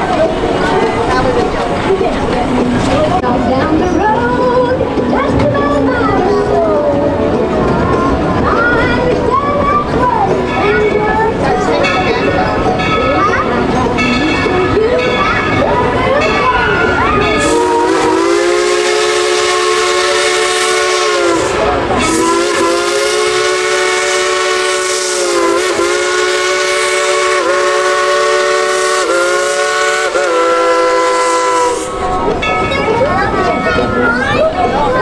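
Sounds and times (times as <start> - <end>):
steam locomotive whistle: 17.4 - 32.2.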